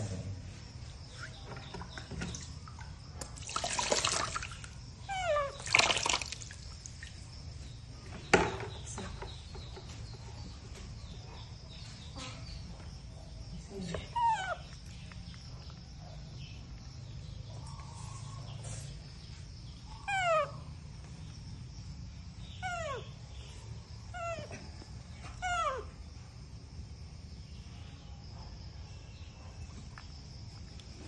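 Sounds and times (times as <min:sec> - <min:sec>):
baby monkey high cries: 0:20.0 - 0:20.6.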